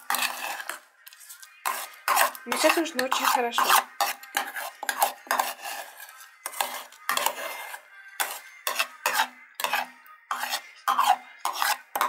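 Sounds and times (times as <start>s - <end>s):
metal spoon scraping ceramic bowl: 0.0s - 12.0s.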